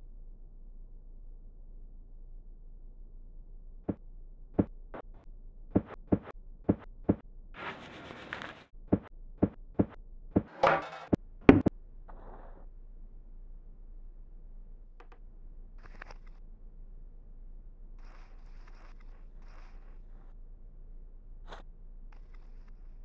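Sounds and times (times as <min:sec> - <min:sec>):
sharp knocks: 0:05.8 - 0:07.2.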